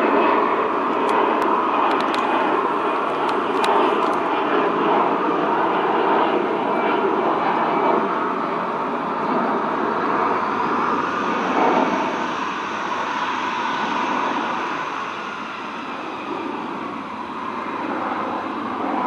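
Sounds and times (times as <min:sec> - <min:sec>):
jet engines humming: 0:00.0 - 0:19.0.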